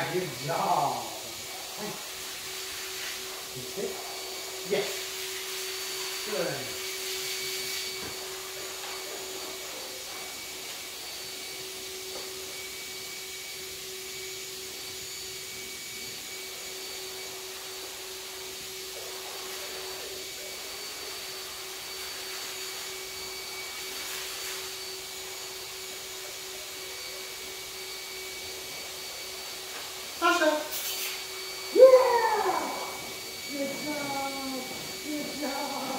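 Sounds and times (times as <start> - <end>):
electric motor whirring hum: 19.6 - 35.9.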